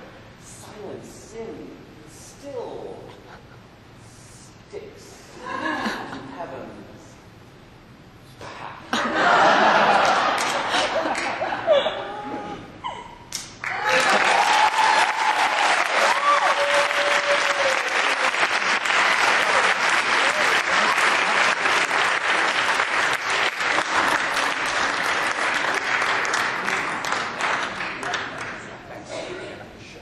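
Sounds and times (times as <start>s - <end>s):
audience applauding: 9.8s - 11.4s, 13.3s - 28.8s
people cheering: 13.6s - 28.6s.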